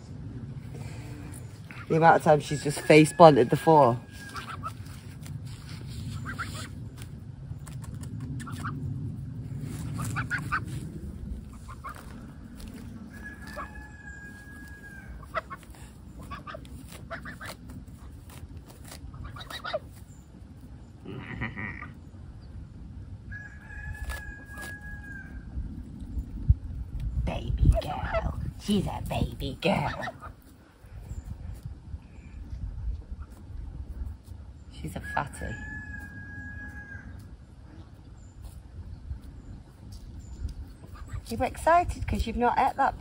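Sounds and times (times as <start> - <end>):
goose pecking at grass: 0.8 - 20.7
farm fowl calling: 1.7 - 5.0, 6.1 - 6.7, 11.5 - 12.2, 13.1 - 17.6, 19.1 - 20.0, 35.0 - 37.3.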